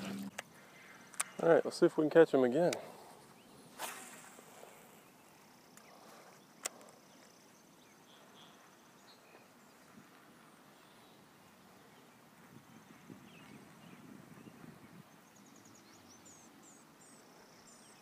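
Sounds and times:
faint chirps: 0:02.7 - 0:10.0, 0:15.2 - 0:18.0.

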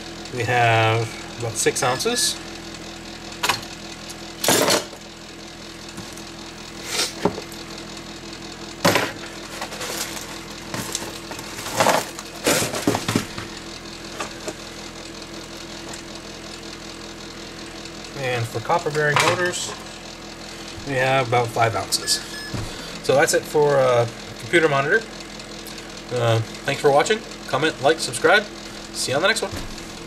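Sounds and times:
scrap parts clattering: 0:04.4 - 0:05.0, 0:08.9 - 0:13.5.

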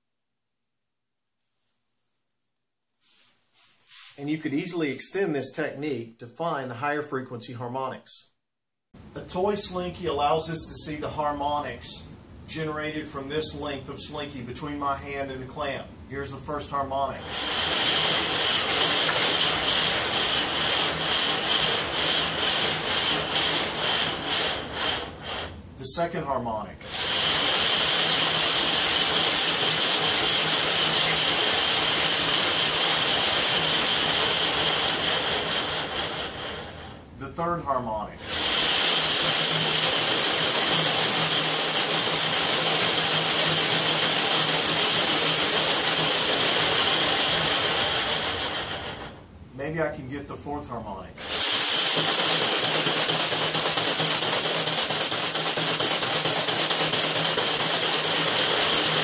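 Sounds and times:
slinky coils rattling and scraping: 0:17.0 - 0:26.1, 0:26.8 - 0:37.0, 0:38.2 - 0:49.2, 0:51.2 - 0:59.0.

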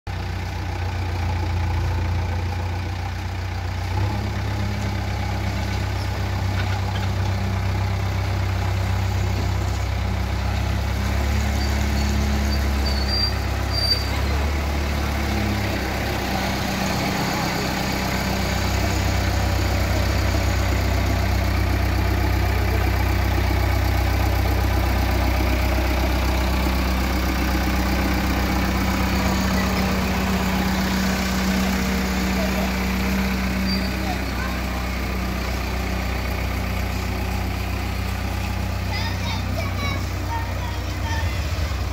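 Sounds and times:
diesel engine running: 0:00.1 - 0:41.9.

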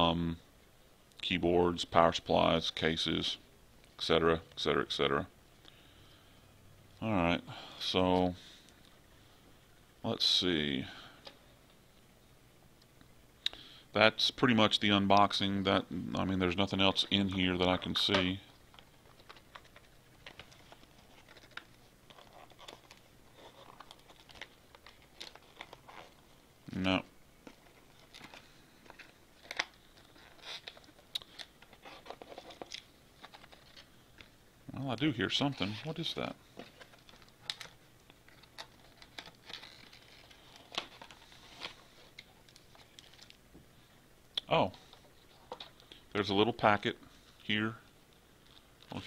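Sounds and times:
packaging being handled: 0:16.9 - 0:26.4, 0:27.4 - 0:34.3, 0:35.3 - 0:43.4.

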